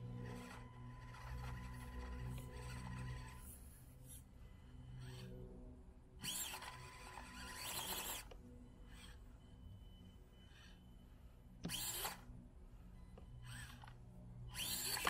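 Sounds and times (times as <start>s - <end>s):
small electric motor whining: 0.0s - 5.5s, 6.2s - 12.3s, 12.9s - 15.0s.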